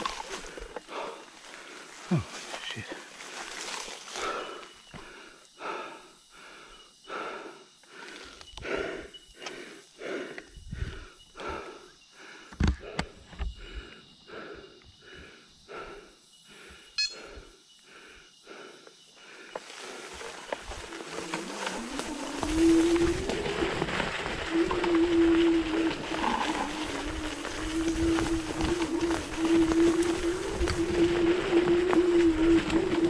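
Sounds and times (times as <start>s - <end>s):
person breathing hard: 0.1s - 3.4s, 4.1s - 22.1s.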